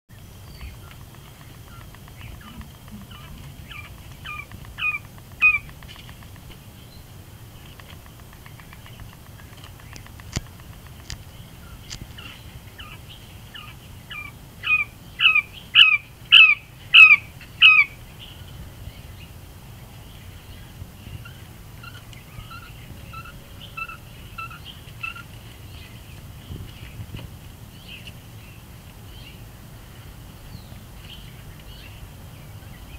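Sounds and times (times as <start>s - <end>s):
quail calling: 0.6s - 6.4s, 8.1s - 18.0s, 21.2s - 25.4s.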